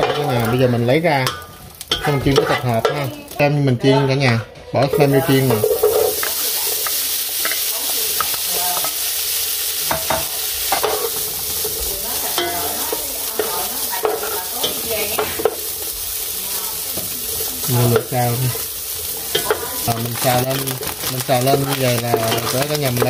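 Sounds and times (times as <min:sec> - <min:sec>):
meat sizzling in hot oil: 0:00.0 - 0:23.0
wooden spatula scraping a pan: 0:01.4 - 0:03.0.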